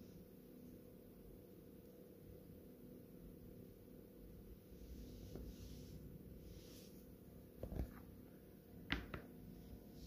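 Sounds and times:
faint steady hum: 0.0 - 10.0
knocks on tabletop: 8.9 - 9.3.

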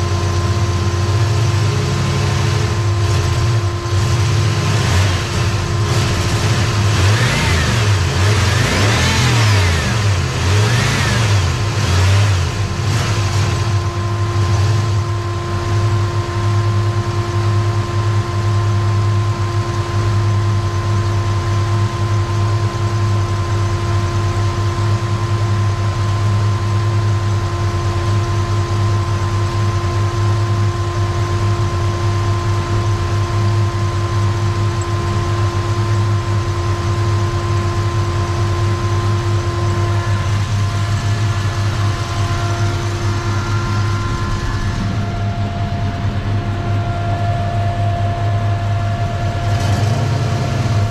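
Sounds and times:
engine idling: 0.0 - 50.9
thin steady whine: 12.5 - 50.9.

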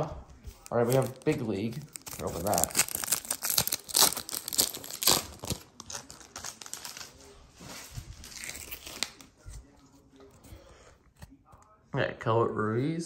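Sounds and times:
plastic wrapper tearing and crinkling: 0.4 - 9.3.

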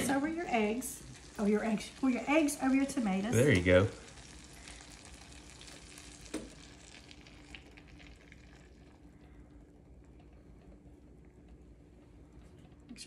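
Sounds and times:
food sizzling in a skillet: 0.0 - 9.0.

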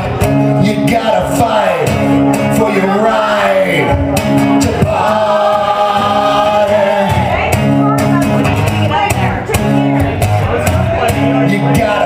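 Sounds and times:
acoustic guitar: 0.0 - 12.0
man singing: 0.5 - 7.7, 10.5 - 12.0.

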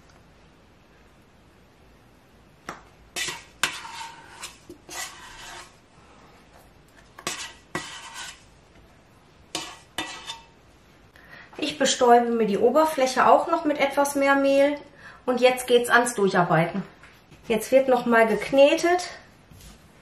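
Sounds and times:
scraper scraping metal bowl: 3.2 - 5.8, 7.2 - 8.5, 9.5 - 10.5.

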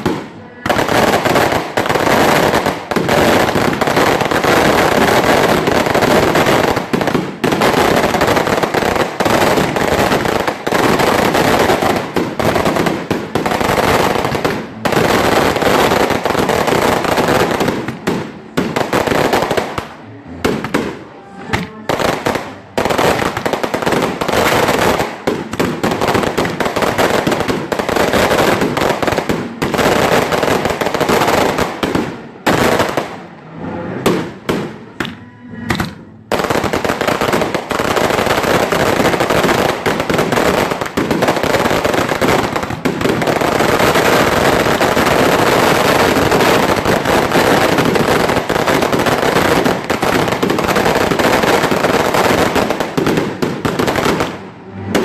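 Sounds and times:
firecracker bangs crackling: 0.0 - 33.3, 34.0 - 55.0.

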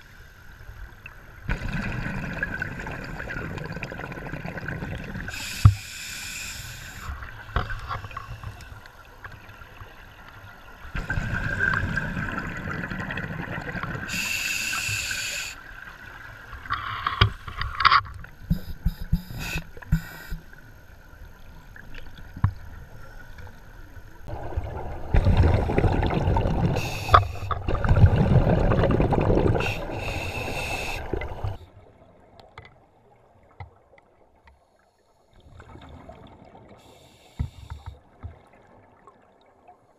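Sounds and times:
scuba regulator breathing underwater: 5.3 - 8.7, 14.1 - 15.7, 18.5 - 20.5, 25.1 - 27.7, 29.4 - 31.6
bubbling exhalation: 25.1 - 31.5.

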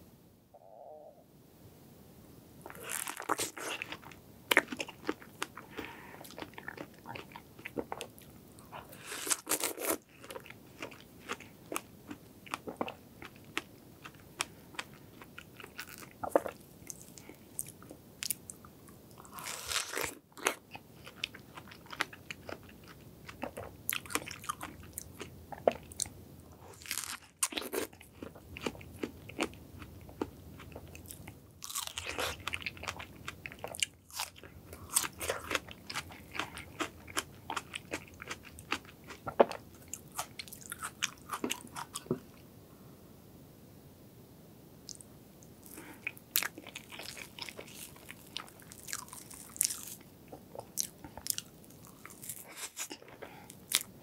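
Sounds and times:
biting and chewing strawberry: 26.7 - 42.1, 45.7 - 53.9.

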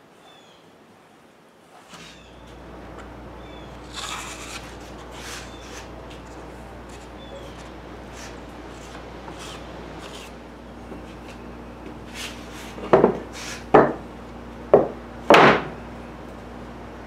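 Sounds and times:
hand rubbing wooden boards: 1.7 - 14.0
wooden boards knocking: 12.9 - 14.0, 14.7 - 15.8.

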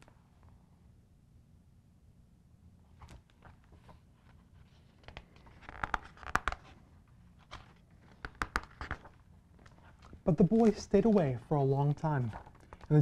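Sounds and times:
book pages rustling: 2.9 - 13.0.

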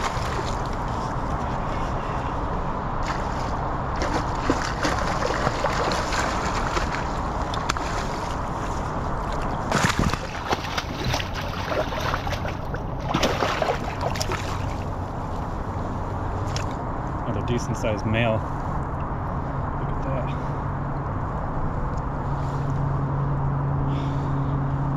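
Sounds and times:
fish splashing at surface: 9.7 - 14.7.

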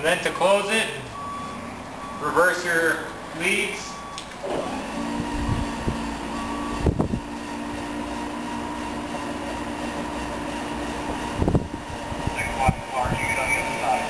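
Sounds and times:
electric motor humming: 4.4 - 14.0.

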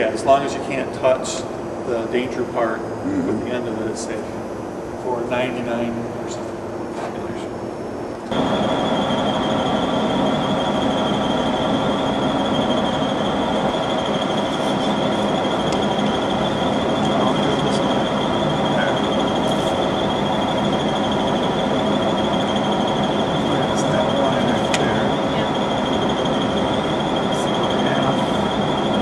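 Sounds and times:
power shear motor whining: 8.2 - 29.0.

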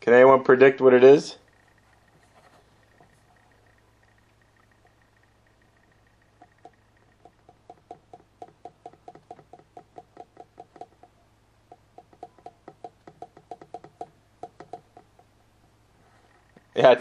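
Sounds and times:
fingers drumming on card box: 5.8 - 15.4.

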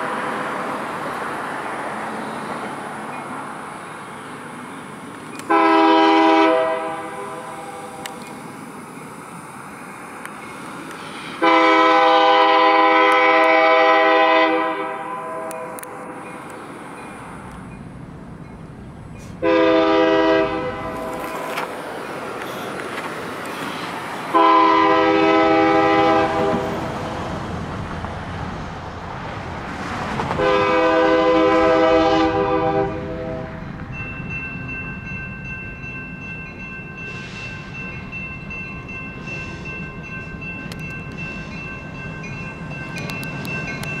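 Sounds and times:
locomotive rumble: 0.0 - 44.0
crossing warning bell ringing: 5.3 - 10.8, 11.4 - 23.0, 30.4 - 44.0
locomotive air horn blasts: 5.5 - 8.1, 11.4 - 15.9, 19.4 - 21.3, 24.3 - 26.7, 30.4 - 33.6.

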